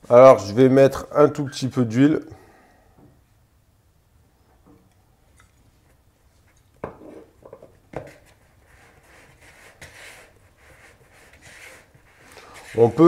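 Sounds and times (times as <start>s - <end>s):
hand rubbing dough in bowl: 8.1s - 13.0s.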